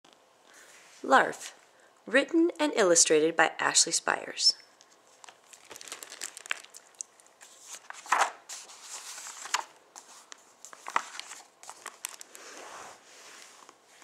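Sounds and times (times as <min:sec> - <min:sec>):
book pages turning: 0:05.1 - 0:14.0.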